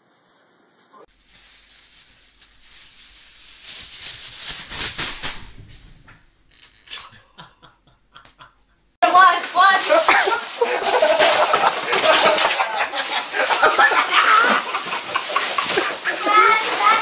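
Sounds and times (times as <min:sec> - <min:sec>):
plastic bag crinkling and rustling: 0:00.0 - 0:06.3, 0:09.2 - 0:17.0
sharp crackles and knocks: 0:00.2 - 0:06.5.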